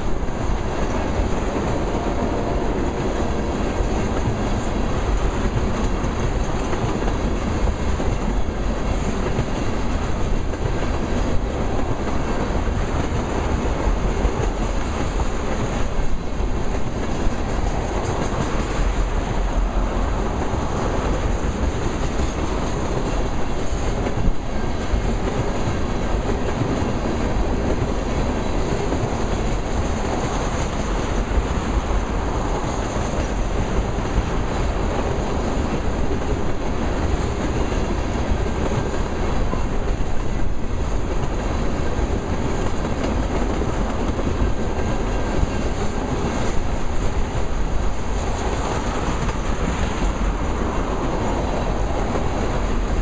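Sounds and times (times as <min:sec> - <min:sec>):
steel wheels rumbling on rail: 0:00.0 - 0:53.0.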